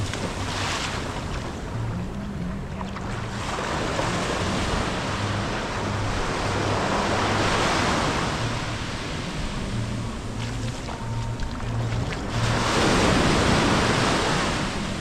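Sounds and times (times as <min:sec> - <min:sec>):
wave washing up beach: 0:11.7 - 0:15.0.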